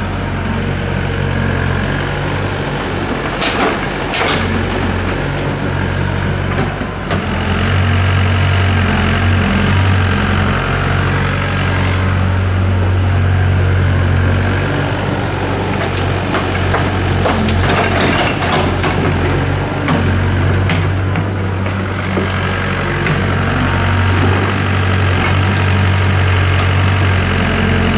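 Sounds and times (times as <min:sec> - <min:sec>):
excavator diesel engine running: 0:00.0 - 0:27.9.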